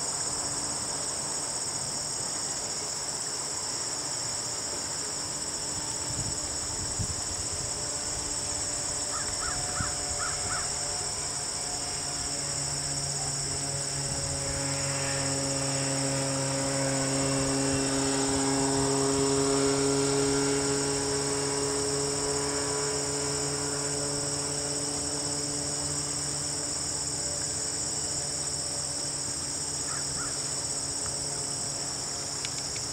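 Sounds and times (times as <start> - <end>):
crickets chirring: 0.0 - 32.9
low engine drone passing: 4.9 - 32.9.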